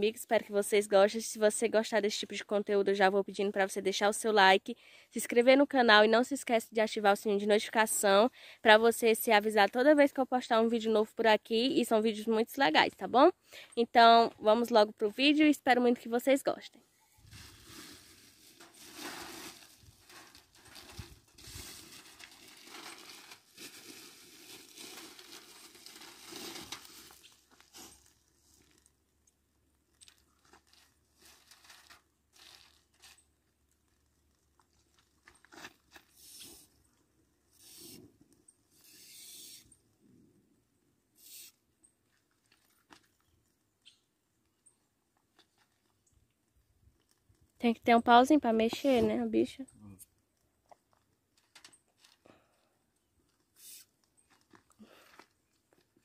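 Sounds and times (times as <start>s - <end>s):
plastic bag crinkling: 17.2s - 29.0s, 29.8s - 36.2s.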